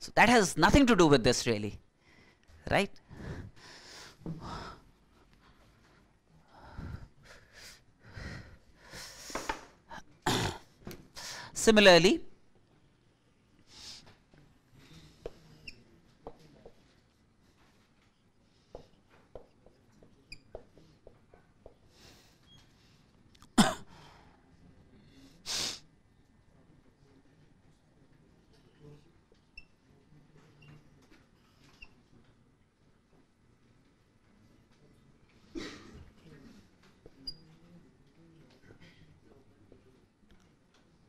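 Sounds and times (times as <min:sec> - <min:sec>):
marker squeaking on whiteboard: 0:15.2 - 0:16.4, 0:18.8 - 0:21.1, 0:31.4 - 0:32.0, 0:37.2 - 0:37.5.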